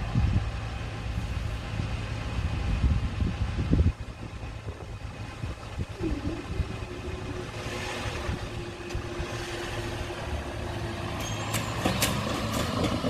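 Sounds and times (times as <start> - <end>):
car pulling away: 0.7 - 13.0
barrier mechanism humming: 5.3 - 10.7.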